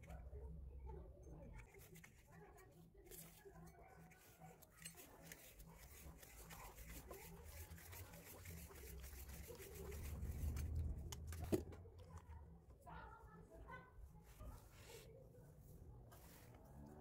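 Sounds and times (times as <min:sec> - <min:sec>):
low rumble: 0:10.0 - 0:11.7.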